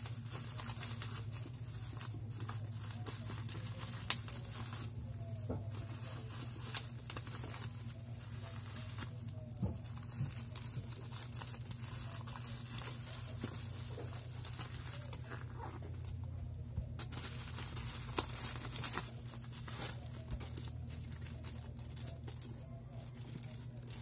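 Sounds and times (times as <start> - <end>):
bubble wrap and tape crinkling: 0.0 - 24.0
steady low hum: 0.0 - 24.0.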